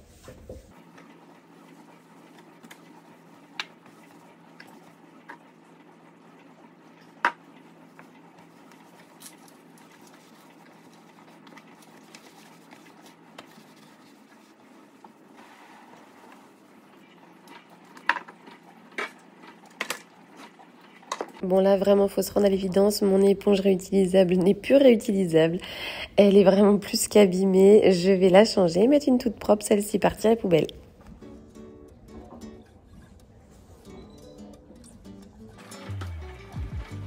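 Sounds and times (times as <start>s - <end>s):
cloth rubbing on sink: 0.0s - 5.1s, 7.8s - 18.0s.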